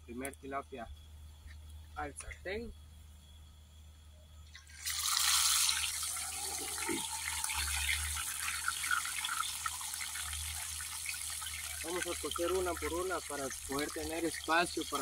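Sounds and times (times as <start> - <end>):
fish sizzling in hot oil: 4.5 - 15.0
oil popping: 4.5 - 15.0.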